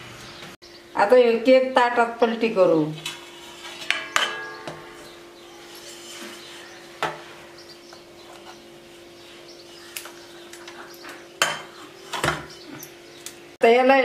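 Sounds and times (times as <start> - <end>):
metal plate and tin clattering: 3.0 - 6.6.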